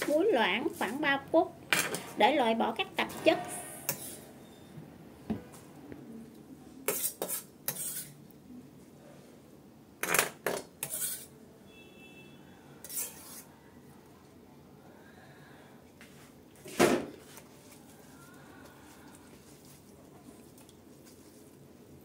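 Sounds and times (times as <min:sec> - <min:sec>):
knife scraping on cutting board: 0:03.3 - 0:04.3, 0:06.9 - 0:08.2, 0:10.8 - 0:11.3, 0:12.8 - 0:13.5.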